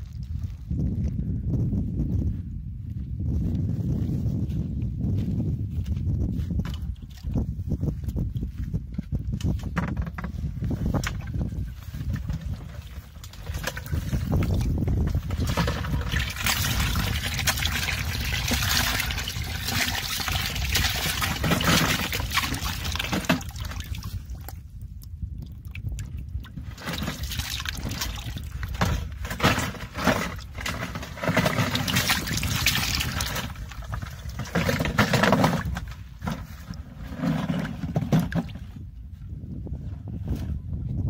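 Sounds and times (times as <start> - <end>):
water pouring into a plastic bucket: 12.4 - 24.6, 25.5 - 36.8
fish splashing into water: 15.9 - 24.5, 31.7 - 33.9.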